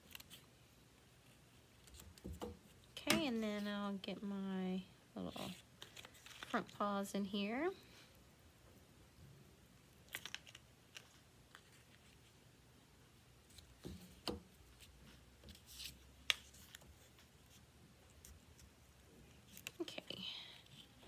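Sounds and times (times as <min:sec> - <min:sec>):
paper rustling: 0:05.4 - 0:06.8, 0:10.1 - 0:12.4.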